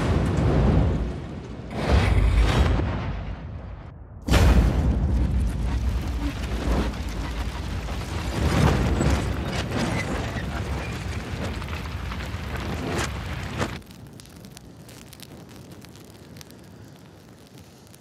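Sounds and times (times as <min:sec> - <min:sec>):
loud explosion blast: 0:00.0 - 0:09.6
low rumble of fireball: 0:00.0 - 0:18.0.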